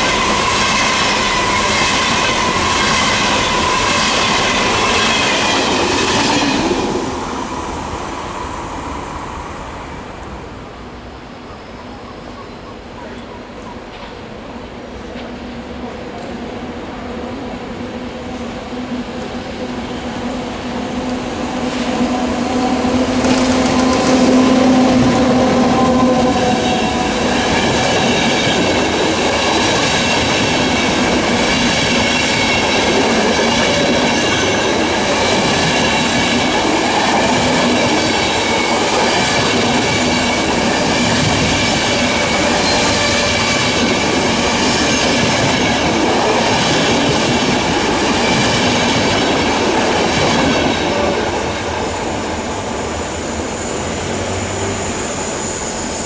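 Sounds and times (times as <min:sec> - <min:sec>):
electric train passing: 0:00.0 - 0:56.0
wheel-on-rail noise: 0:18.3 - 0:56.0.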